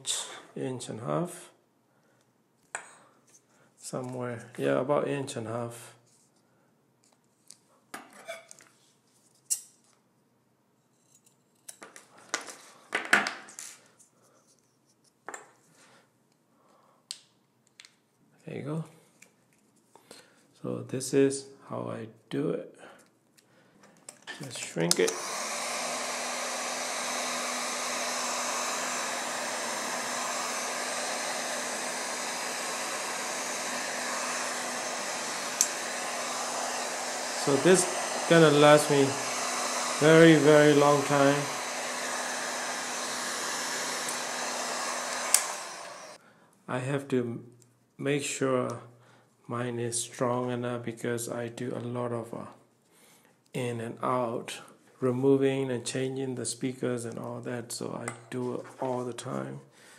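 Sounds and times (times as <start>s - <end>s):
heat gun blowing air: 24.5s - 46.2s.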